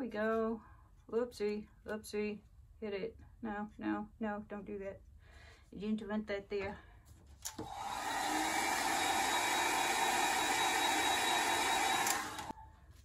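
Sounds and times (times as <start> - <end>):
hair dryer blowing: 7.5 - 12.5.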